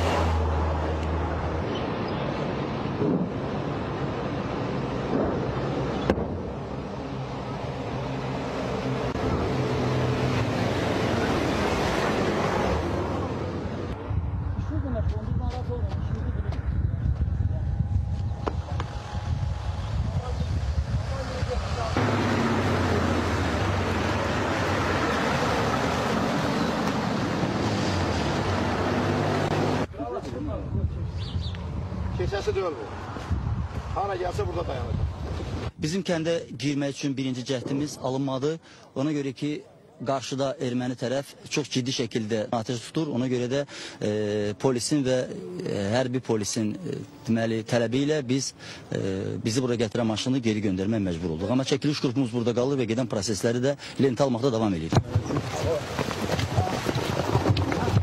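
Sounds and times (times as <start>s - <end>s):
diesel trucks driving by: 0.0s - 14.9s, 17.8s - 30.0s
wind rushing on microphone: 11.5s - 22.0s, 29.8s - 35.8s.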